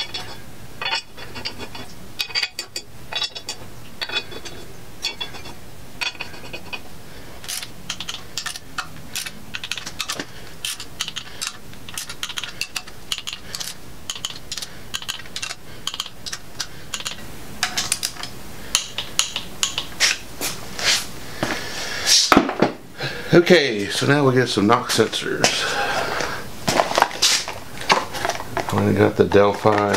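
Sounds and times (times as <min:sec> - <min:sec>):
hand ratchet clicking: 0:07.4 - 0:20.2.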